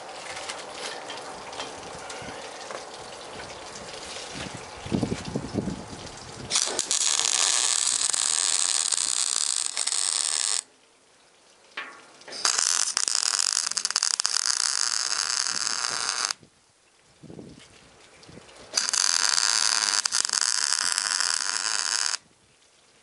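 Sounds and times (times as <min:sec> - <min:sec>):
arc welder crackling hiss: 0:06.5 - 0:10.7, 0:12.3 - 0:16.4, 0:18.7 - 0:22.2.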